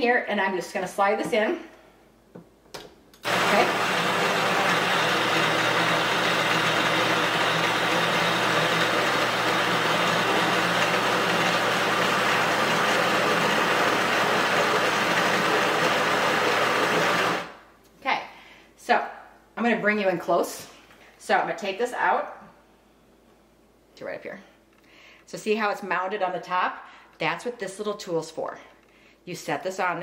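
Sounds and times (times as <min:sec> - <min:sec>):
coffee grinder whirring: 0:03.2 - 0:17.6.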